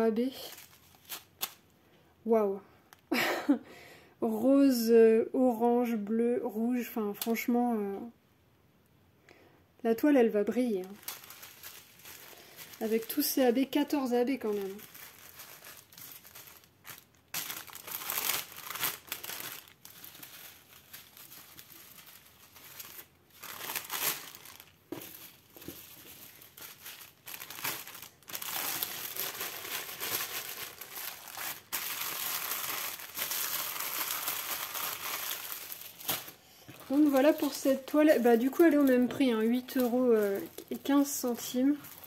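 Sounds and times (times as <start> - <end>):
plastic packaging rustling: 0.2 - 1.7, 10.5 - 42.0
plastic zip bags crinkling: 0.2 - 1.7, 10.7 - 42.0.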